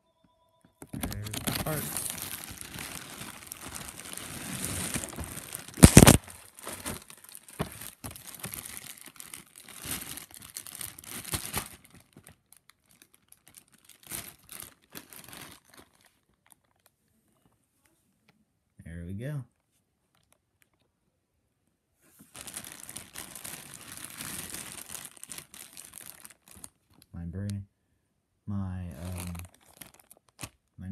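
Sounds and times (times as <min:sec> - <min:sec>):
loud plastic crackle: 0:00.9 - 0:16.9, 0:22.3 - 0:27.1, 0:29.0 - 0:30.6
plastic bags crinkling: 0:00.9 - 0:16.9, 0:22.3 - 0:27.1, 0:29.0 - 0:30.6.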